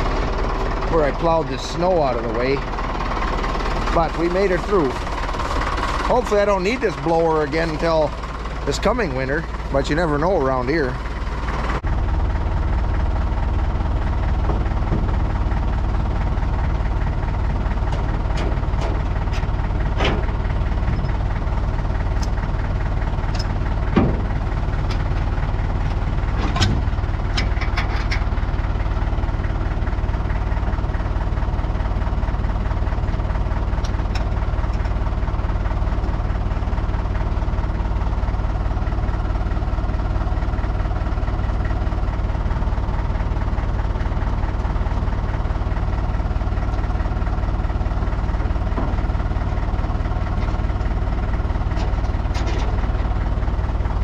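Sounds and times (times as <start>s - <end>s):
tractor engine idling: 0.0s - 54.0s
metal clicks and clanks: 17.8s - 21.2s, 23.2s - 28.4s, 33.1s - 35.0s, 50.3s - 53.2s.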